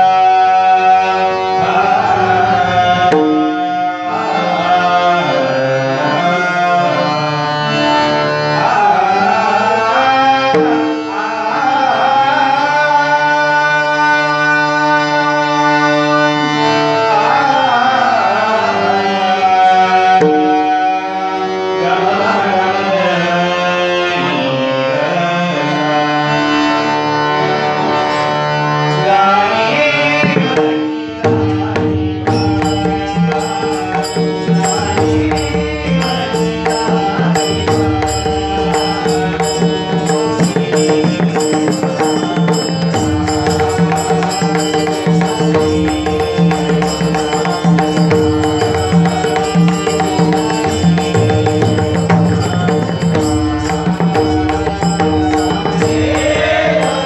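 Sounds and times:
man singing devotional song: 0.0 - 57.0
sustained accompanying notes: 31.6 - 57.0.

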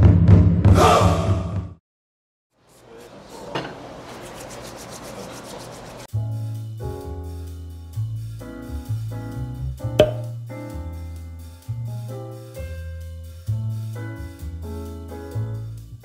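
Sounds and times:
hands rubbing together: 2.7 - 6.1
music with bass and piano: 6.1 - 16.0.

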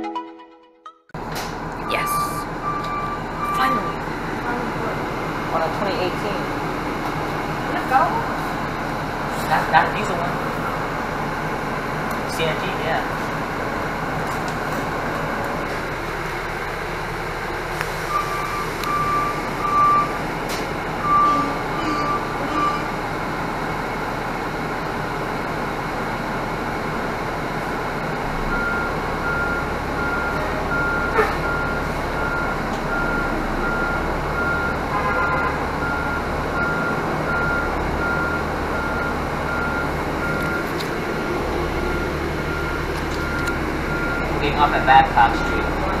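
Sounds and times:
diesel bus engine hum: 1.2 - 46.0
low beep: 1.8 - 4.0, 18.1 - 20.2, 21.0 - 23.0
reverse alarm beeping: 1.8 - 4.6, 18.1 - 20.2, 21.0 - 23.0, 28.5 - 40.7, 41.8 - 45.9.

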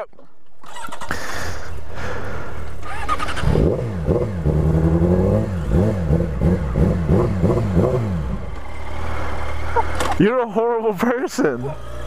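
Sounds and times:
motorcycle engine revving: 2.7 - 12.0.

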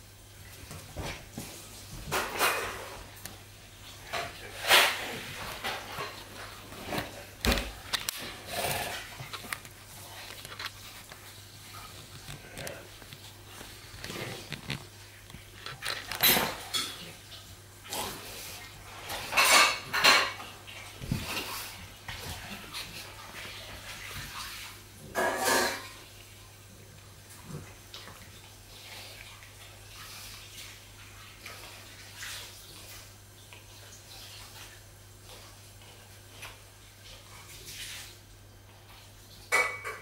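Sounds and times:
dogs scuffling and mouthing: 0.5 - 24.8.

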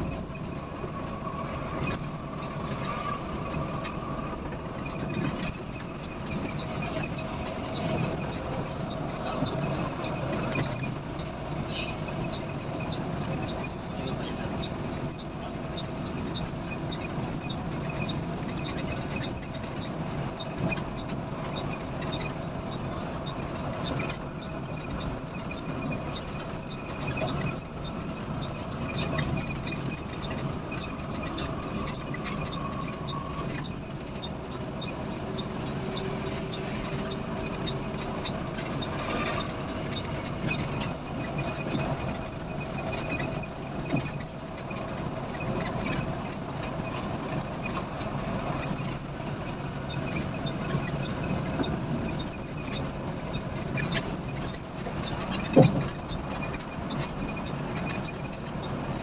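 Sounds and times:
bus engine and road noise: 0.0 - 59.0.

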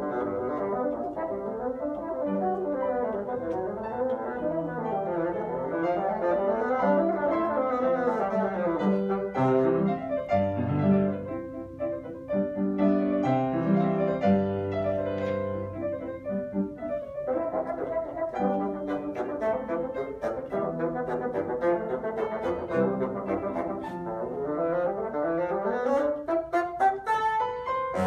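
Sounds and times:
bassoon solo: 0.0 - 11.2, 17.2 - 28.0
piano accompaniment: 0.0 - 28.0.

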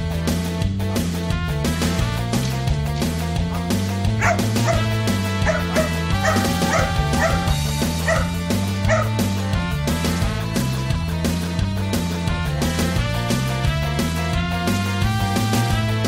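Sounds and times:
background music: 0.0 - 16.0
dog barking: 3.5 - 9.2.

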